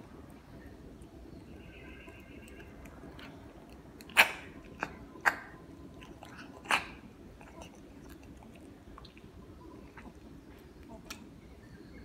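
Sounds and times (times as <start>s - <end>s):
cat crunching on fish: 0.8s - 10.4s.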